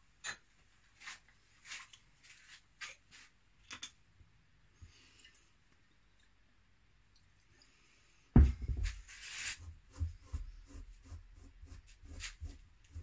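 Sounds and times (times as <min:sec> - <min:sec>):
knock on wooden workbench: 0:08.4 - 0:09.0.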